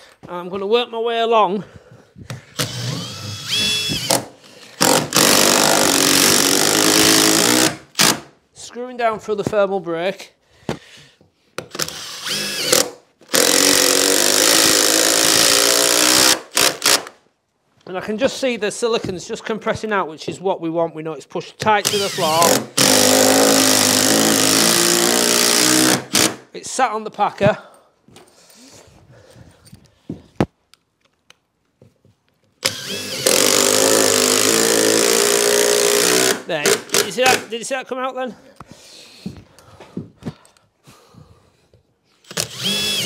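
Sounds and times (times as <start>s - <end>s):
power drill driving screw: 2.5s - 8.3s, 11.6s - 17.2s, 21.8s - 26.4s, 32.6s - 37.4s, 42.2s - 43.0s.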